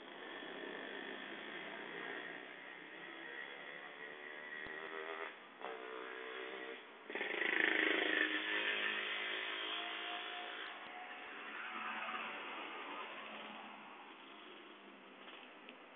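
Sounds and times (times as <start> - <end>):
vehicles passing on road: 9.1 - 15.9.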